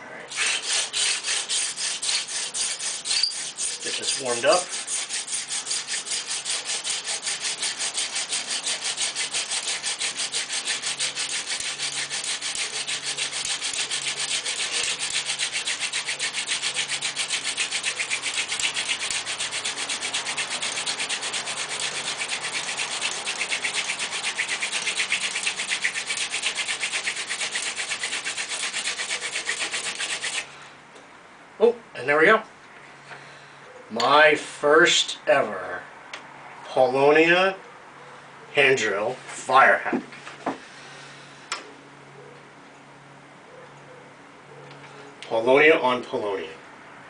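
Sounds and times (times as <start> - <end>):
wooden spindle rasping in notch: 0.3 - 30.5.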